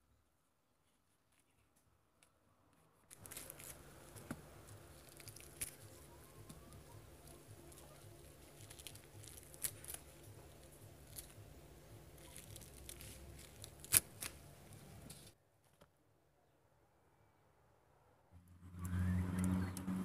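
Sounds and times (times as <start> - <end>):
fruit flesh tearing and crinkling: 2.2 - 15.3
low steady hum: 2.7 - 15.4.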